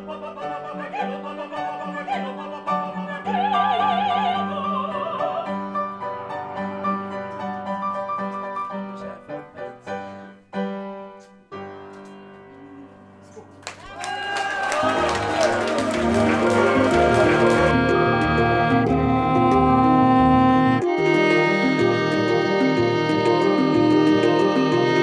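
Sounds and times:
operatic singing: 0.0s - 5.7s, 14.7s - 19.3s
piano accompaniment: 0.0s - 25.0s.

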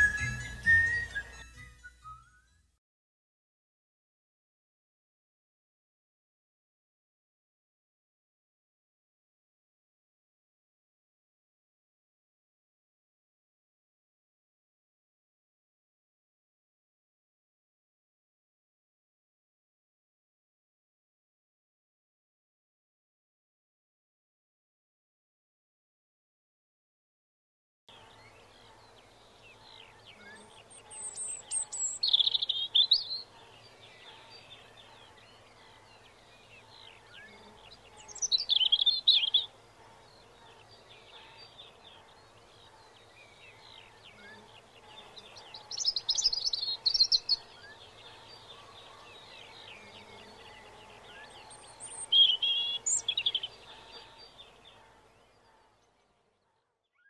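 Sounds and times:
loud high-pitched birdsong: 0.0s - 2.3s, 27.9s - 57.0s
faint bird chirps: 27.9s - 57.0s.

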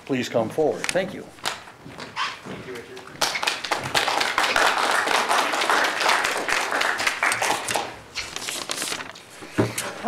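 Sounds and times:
audience clapping: 3.0s - 8.0s.

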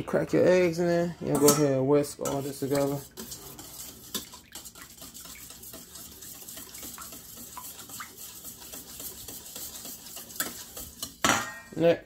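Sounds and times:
whisk clinking against metal bowl: 1.2s - 11.7s
liquid swishing: 2.0s - 11.3s.

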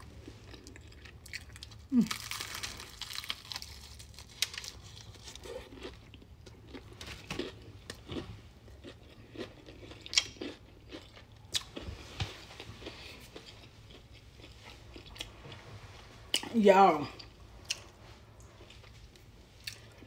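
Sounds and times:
chewing crispy fried chicken: 0.0s - 15.4s.

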